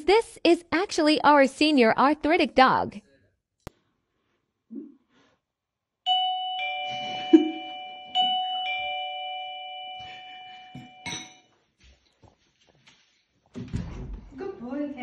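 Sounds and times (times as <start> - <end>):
doorbell ding-dong chime: 6.1 - 11.4.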